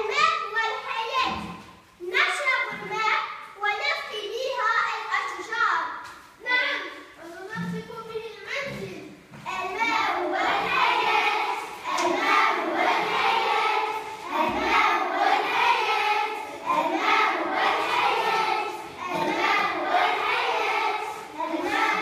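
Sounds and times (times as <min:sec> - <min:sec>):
children singing together: 0:09.5 - 0:22.0.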